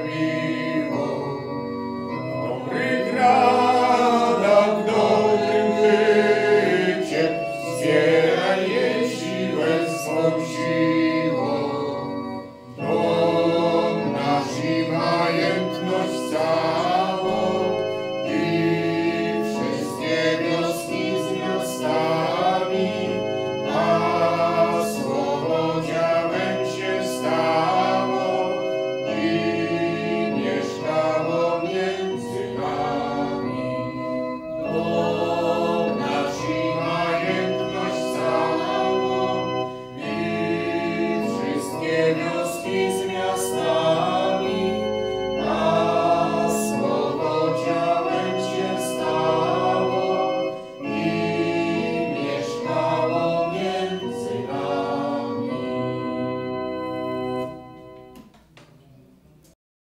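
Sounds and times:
choir singing a hymn: 0.0s - 58.2s
sustained keyboard accompaniment: 0.0s - 59.6s.

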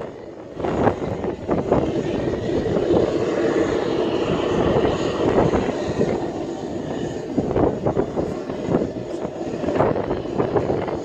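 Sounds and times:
faint high engine whine: 0.0s - 11.0s
jet engines rushing: 0.0s - 11.0s.

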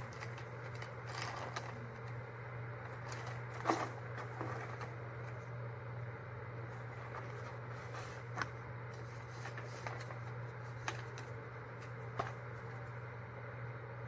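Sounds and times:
paper and card rustling: 0.0s - 2.2s, 2.9s - 5.4s, 6.7s - 12.9s.

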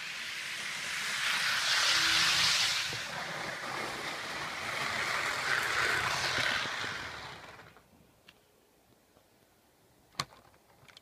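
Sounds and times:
model train rattling on track: 0.0s - 7.8s.

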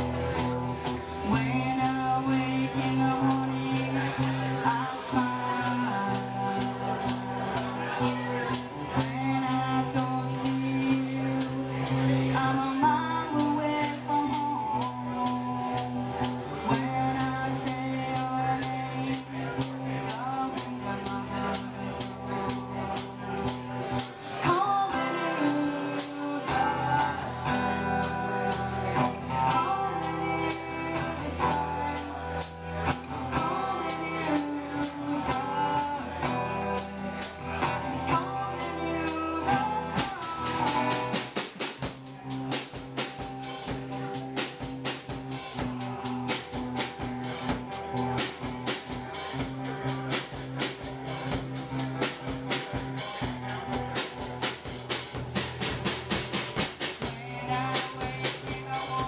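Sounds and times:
person singing: 0.0s - 48.4s, 56.6s - 59.0s
rock band playing: 0.0s - 59.0s
drum beat: 40.0s - 59.0s.

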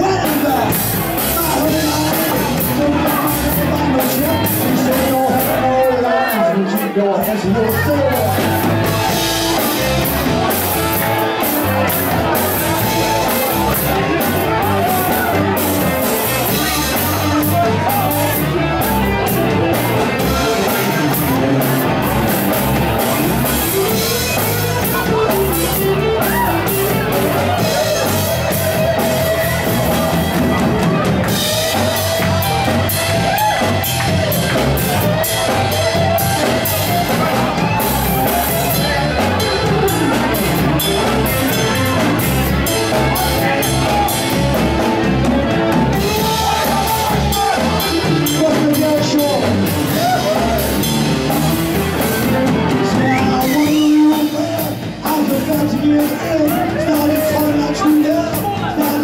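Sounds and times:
drum kit beat: 0.0s - 59.0s
electric guitar: 0.0s - 59.0s
person singing: 0.0s - 59.0s.

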